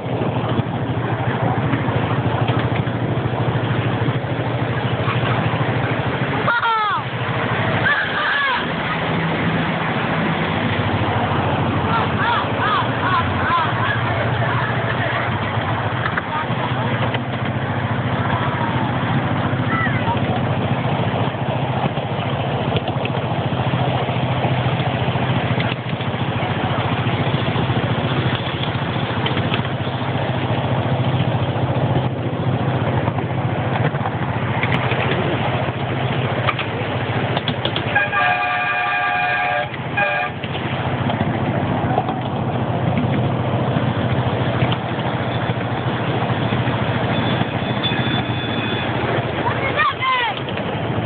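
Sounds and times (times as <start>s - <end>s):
miniature train engine drone: 0.0s - 51.0s
train cars rattling: 0.0s - 51.0s
train horn toots: 37.9s - 40.4s.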